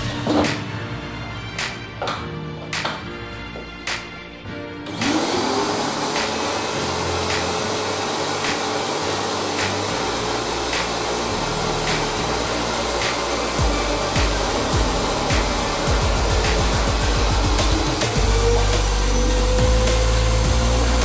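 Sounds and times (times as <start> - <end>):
vacuum cleaner running: 4.8 - 21.0.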